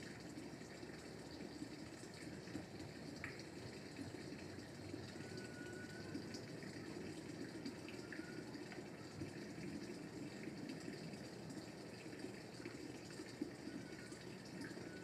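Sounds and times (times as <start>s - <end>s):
faint high chirps: 5.2s - 6.2s, 8.0s - 8.5s.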